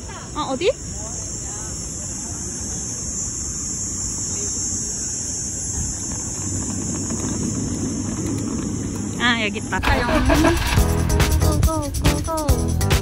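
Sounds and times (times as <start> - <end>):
constant high hiss: 0.0 - 13.0
low vehicle rumble: 6.1 - 12.5.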